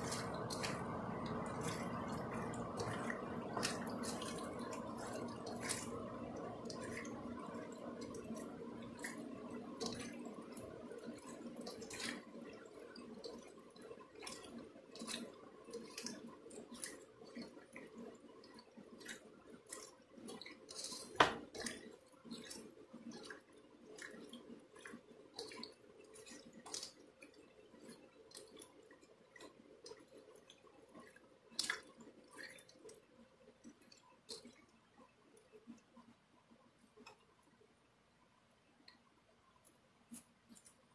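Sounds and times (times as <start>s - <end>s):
hands squelching meat in marinade: 0.0s - 35.6s.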